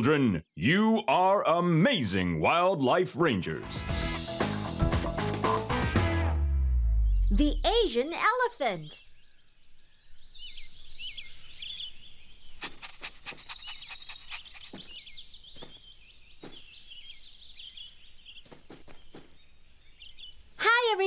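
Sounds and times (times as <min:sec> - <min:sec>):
birds chirping: 0:06.8 - 0:21.0.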